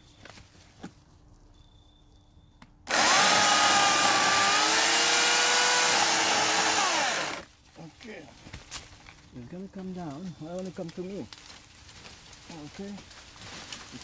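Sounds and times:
electric chainsaw running: 2.9s - 7.5s.

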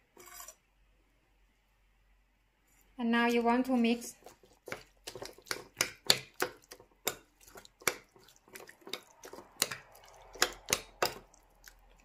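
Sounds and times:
utensil tapping and scraping bowl: 3.2s - 11.8s
wet squishing: 4.1s - 12.0s.

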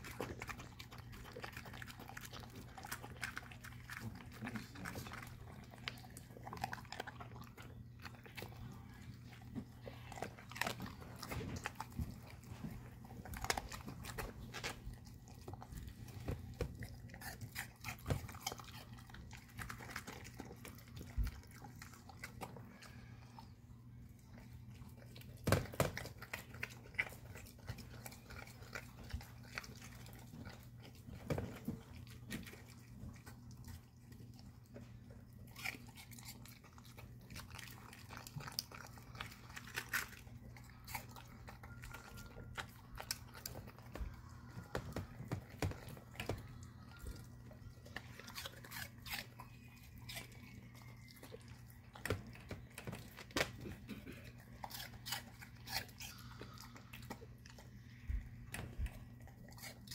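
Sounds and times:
puppy crunching and chewing: 0.0s - 59.9s.

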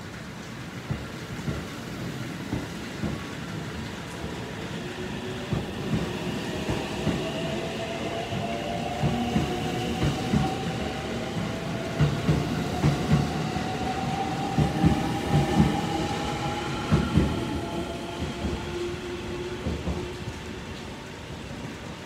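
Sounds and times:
wheels clacking on rail joints: 0.7s - 4.2s.

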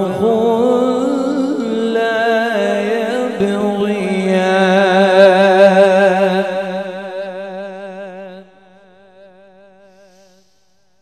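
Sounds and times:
man reciting in a long wavering note: 0.0s - 10.5s.

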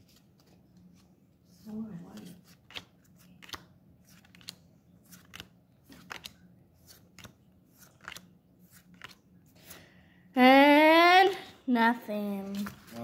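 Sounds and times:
trading cards snapping: 2.5s - 9.2s.

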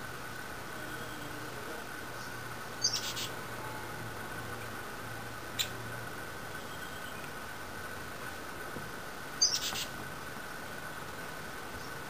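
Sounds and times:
young woodpecker squeaking: 2.8s - 3.3s, 9.4s - 9.9s.

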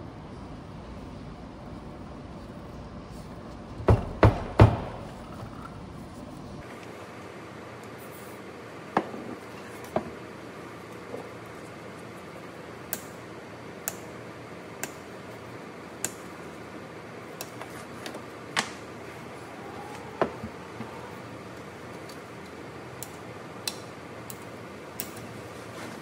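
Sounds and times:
steady background hiss: 0.0s - 26.0s
pliers clicking on metal: 13.8s - 14.1s, 23.0s - 25.3s.

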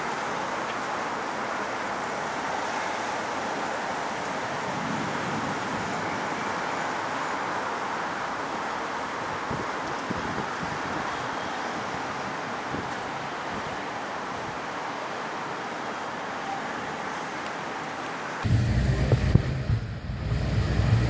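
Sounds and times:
low rumble: 18.4s - 21.0s
strong wind rushing: 18.4s - 21.0s.

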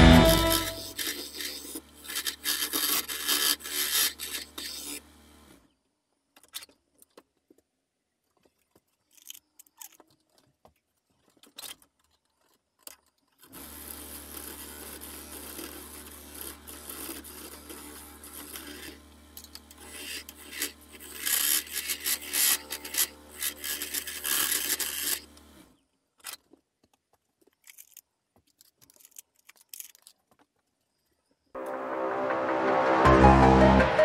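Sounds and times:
gouge scraping wooden bowl: 0.0s - 5.0s, 14.3s - 19.0s.

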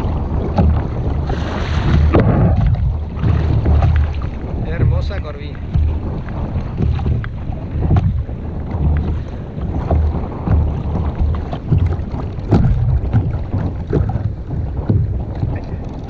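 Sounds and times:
water lapping against hull: 0.0s - 16.0s
wind buffeting microphone: 0.0s - 16.0s
small knocks: 9.8s - 16.0s.

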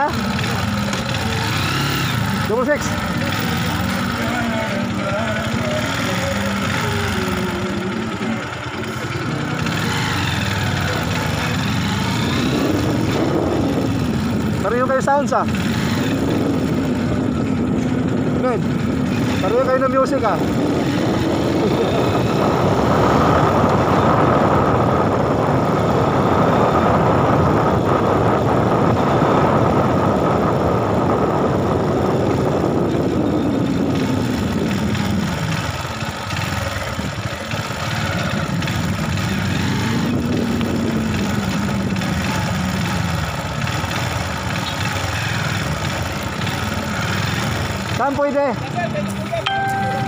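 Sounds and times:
motorcycle engine running: 0.0s - 50.0s
road and wind noise: 0.0s - 50.0s.

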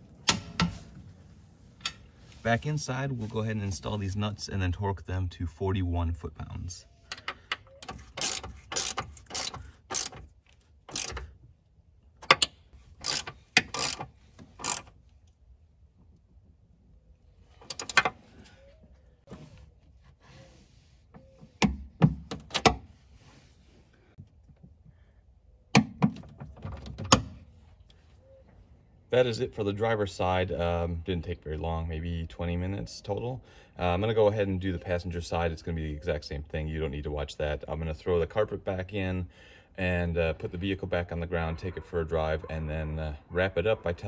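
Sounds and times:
hand ratchet clicking: 7.1s - 10.3s, 10.9s - 11.3s, 12.2s - 14.9s.

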